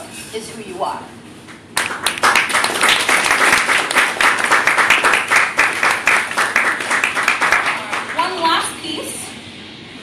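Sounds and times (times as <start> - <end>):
audience applauding: 1.8 - 8.4.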